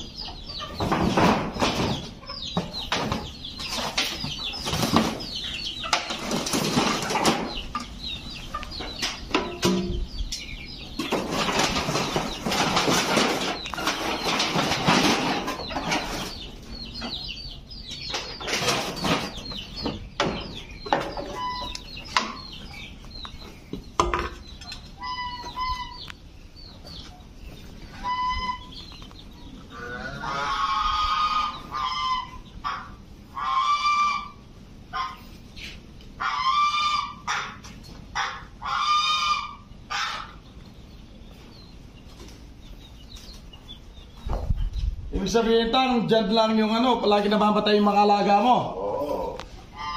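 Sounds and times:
bamboo poles rattling: 5.9s - 7.6s, 11.0s - 16.2s
poultry honking squawks: 21.2s - 21.8s, 25.0s - 26.1s, 27.9s - 28.9s, 29.6s - 35.4s, 36.2s - 40.5s, 49.7s - 49.9s.

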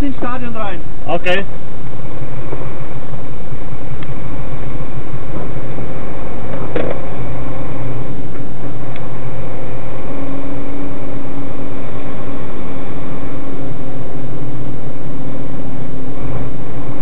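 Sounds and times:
steady hum: 0.0s - 17.0s
vehicle engine running: 0.0s - 17.0s
sharp knock: 6.6s - 7.0s.

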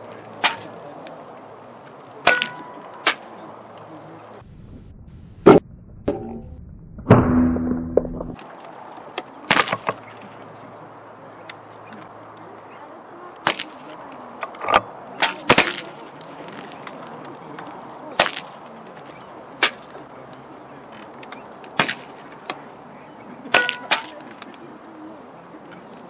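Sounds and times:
sharp cracks: 0.1s - 1.2s, 2.1s - 3.9s, 7.0s - 10.3s, 13.4s - 20.4s, 21.0s - 22.6s, 23.5s - 24.6s.

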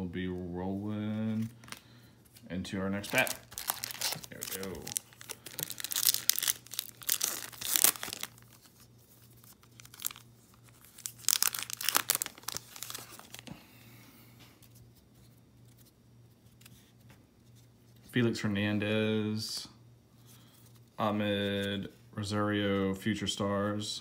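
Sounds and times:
wrapper tearing and crinkling: 3.0s - 13.5s.

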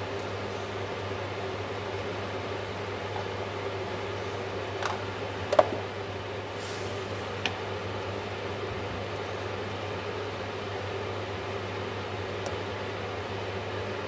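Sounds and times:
induction hob humming and hissing: 0.0s - 14.0s.

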